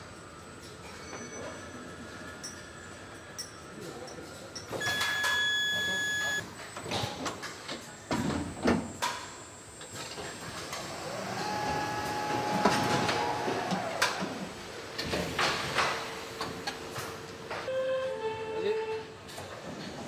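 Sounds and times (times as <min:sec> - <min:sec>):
lower steady machine tone: 0:04.8 - 0:14.1
electric machinery whine: 0:04.8 - 0:14.7.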